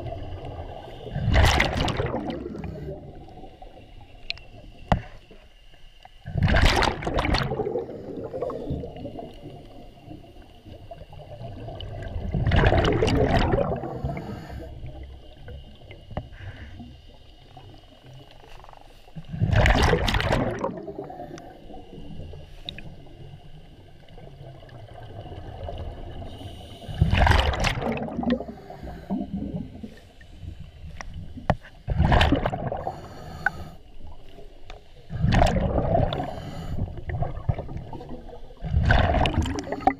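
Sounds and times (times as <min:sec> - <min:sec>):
water gurgling and rushing: 0:00.0 - 0:03.6, 0:06.2 - 0:10.0, 0:10.6 - 0:14.2, 0:19.3 - 0:22.8, 0:26.9 - 0:30.0, 0:31.0 - 0:33.0, 0:35.1 - 0:39.9
low underwater rumble: 0:00.0 - 0:33.1, 0:34.0 - 0:39.9.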